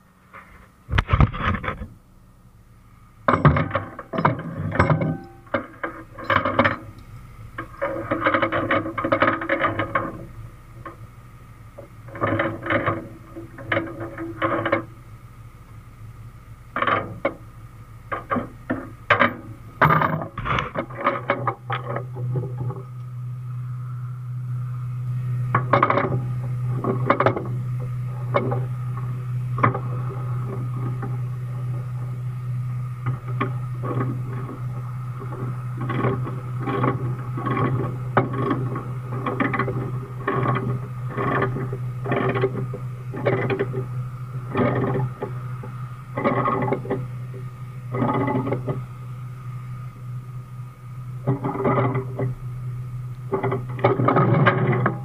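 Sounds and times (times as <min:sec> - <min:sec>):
steady low hum: 0:00.0 - 0:55.0
steel chain clanking: 0:03.3 - 0:06.9.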